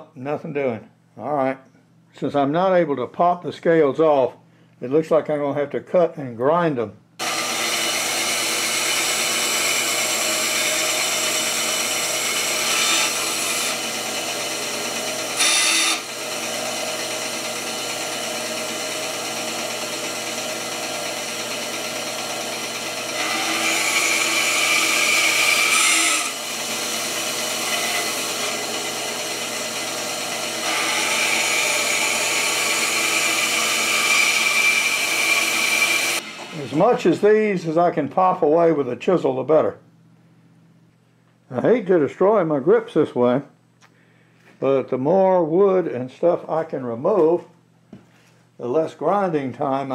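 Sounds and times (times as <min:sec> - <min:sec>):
band saw cutting wood: 0:07.2 - 0:37.3.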